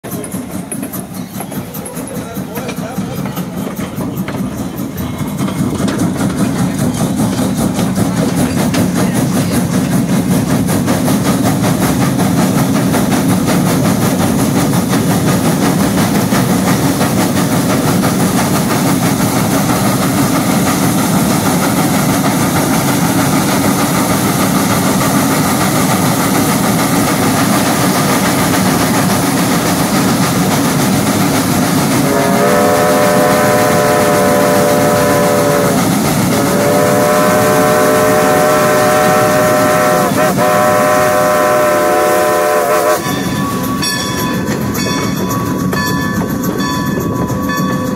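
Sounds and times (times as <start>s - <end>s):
steam locomotive exhaust beats: 0.0s - 47.9s
steam whistle chord: 32.0s - 44.0s.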